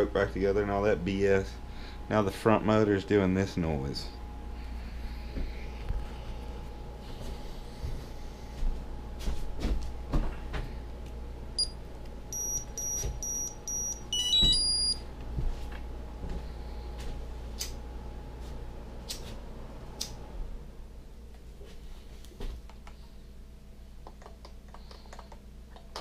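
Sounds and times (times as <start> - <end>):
motor beeps: 11.6 - 15.1.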